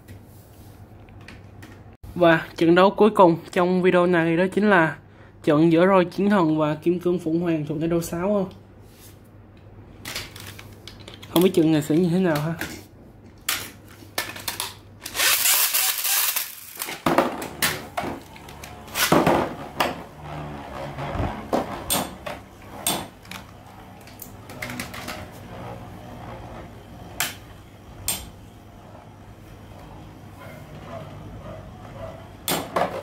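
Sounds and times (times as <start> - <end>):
spinning tops whirring: 15.1 - 33.0.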